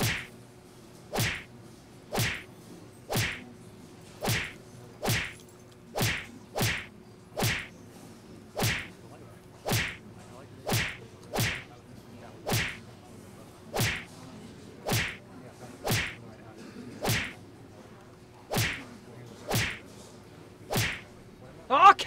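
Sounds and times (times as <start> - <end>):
slaps to the face: 0.0 - 0.3, 1.2 - 1.5, 2.2 - 2.4, 3.1 - 3.4, 4.2 - 5.4, 6.0 - 7.7, 8.6 - 8.9, 9.7 - 10.0, 10.7 - 11.7, 12.5 - 12.8, 13.8 - 14.1, 14.9 - 15.2, 15.9 - 16.2, 17.0 - 17.4, 18.5 - 18.8, 19.5 - 19.8, 20.7 - 21.0.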